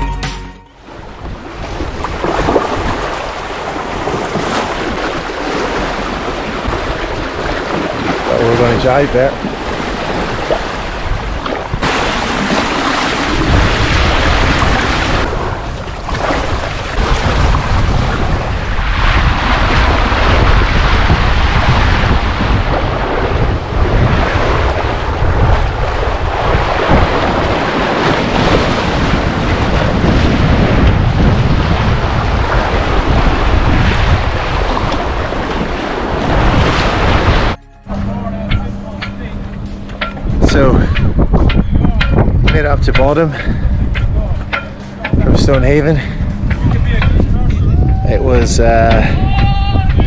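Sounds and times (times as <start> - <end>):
wind buffeting microphone: 0.8 - 50.0
sea water splashing on hulls: 0.9 - 37.6.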